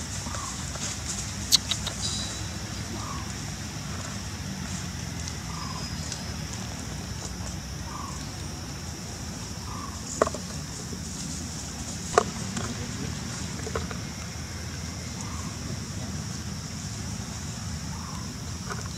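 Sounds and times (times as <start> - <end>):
faint short calls: 1.4 - 3.3
sharp clicks: 1.5 - 2.1.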